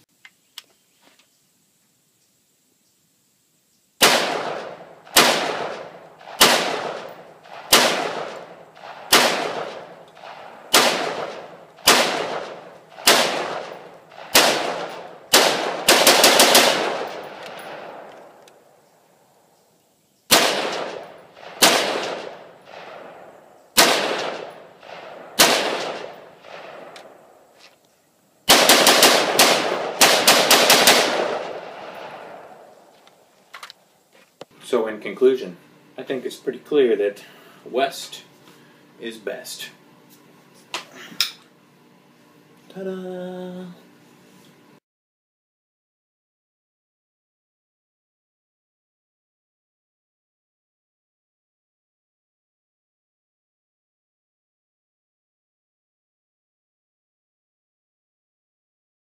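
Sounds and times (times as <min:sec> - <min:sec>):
rifle shots with echo: 0:04.0 - 0:18.4, 0:20.3 - 0:27.4, 0:28.5 - 0:32.8.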